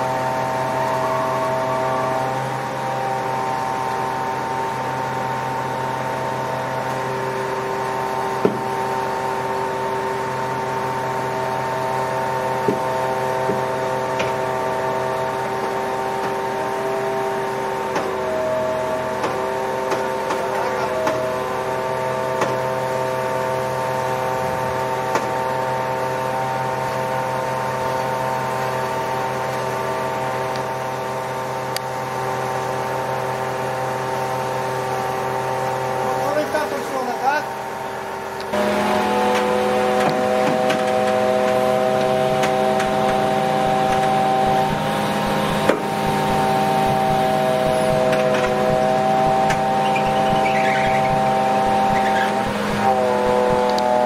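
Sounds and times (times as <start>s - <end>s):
hydraulic pump whine: 0.0s - 54.0s
truck engine running: 0.0s - 54.0s.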